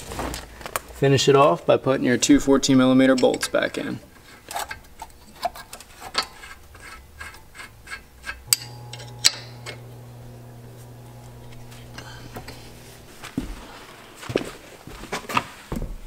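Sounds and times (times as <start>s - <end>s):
low steady hum: 2.4s - 15.0s
metal clicks and scraping: 3.1s - 13.3s.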